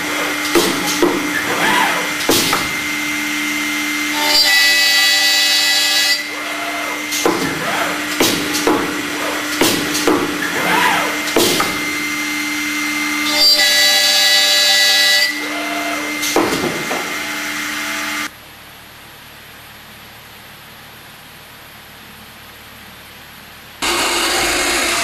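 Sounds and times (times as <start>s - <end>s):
axis motors whirring: 0.0s - 18.3s, 23.8s - 25.0s
high multi-tone spindle whine: 0.0s - 18.3s, 23.8s - 25.0s
spindle motors humming: 0.0s - 18.3s, 23.8s - 25.0s.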